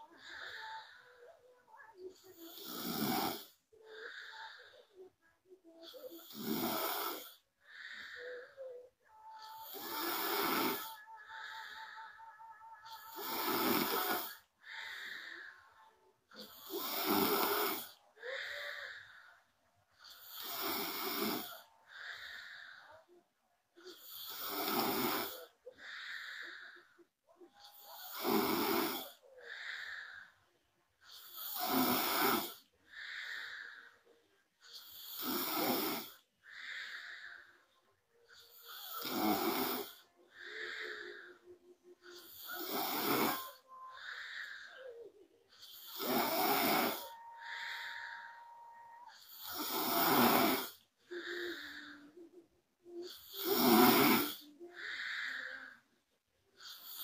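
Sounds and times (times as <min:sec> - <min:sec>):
woman snoring: 0:00.0 - 0:23.2, 0:23.8 - 0:30.4, 0:31.1 - 0:34.0, 0:34.7 - 0:56.0, 0:56.6 - 0:57.0.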